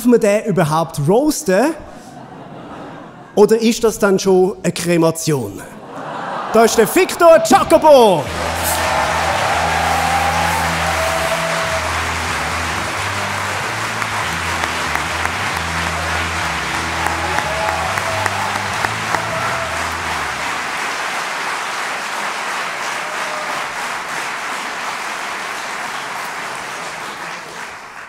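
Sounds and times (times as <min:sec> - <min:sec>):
audience applauding: 0:06.7 - 0:28.0
walk-on music with bass line: 0:08.3 - 0:20.5.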